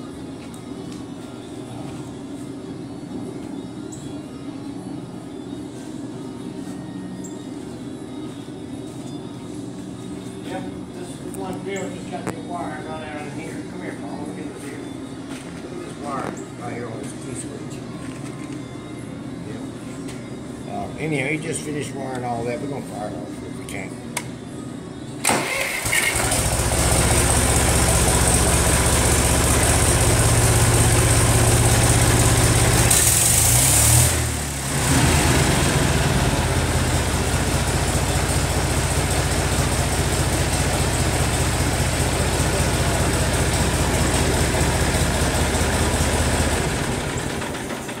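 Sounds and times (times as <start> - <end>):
tractor engine running: 25.2 - 48.0.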